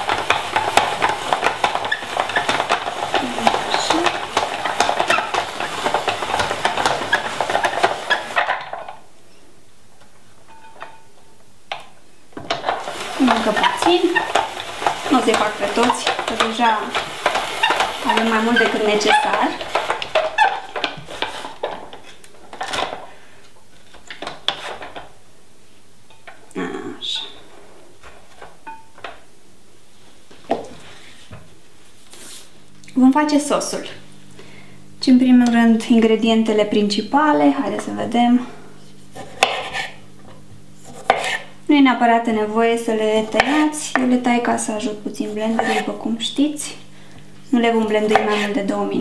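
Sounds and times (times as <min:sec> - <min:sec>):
spiralizer clicking and scraping: 0:00.0 - 0:08.8, 0:12.5 - 0:22.0.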